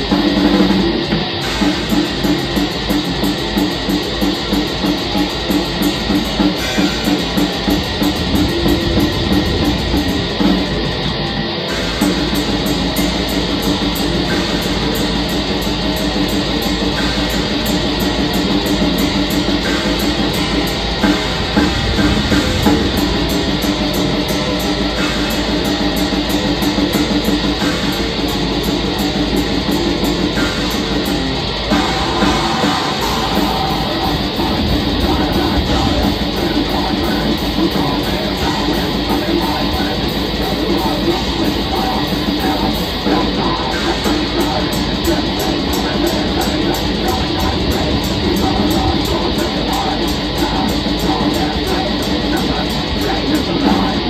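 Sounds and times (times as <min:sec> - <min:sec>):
distorted electric guitars: 0:00.0 - 0:54.0
fast driving drums: 0:00.0 - 0:54.0.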